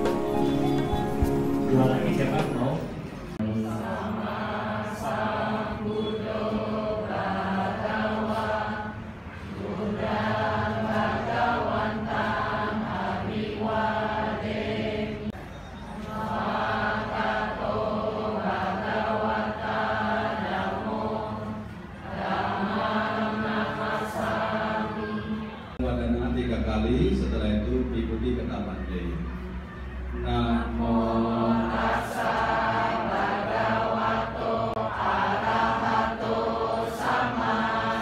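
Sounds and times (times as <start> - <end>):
group chanting: 3.4 - 15.4, 16.0 - 25.8, 30.3 - 38.0.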